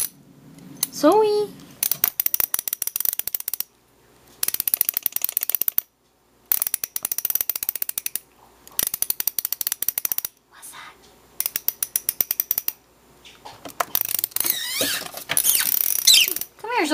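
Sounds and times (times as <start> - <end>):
torque wrench ratchet clicking: 1.8 - 3.7, 4.4 - 5.9, 6.5 - 10.3, 11.4 - 12.8, 13.9 - 14.7, 15.4 - 16.5.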